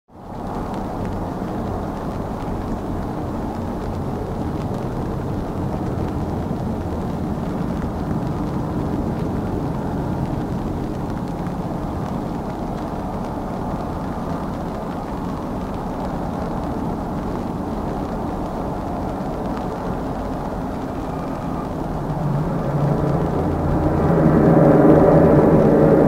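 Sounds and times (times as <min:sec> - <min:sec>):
turboprop engines droning: 0:16.6 - 0:26.0.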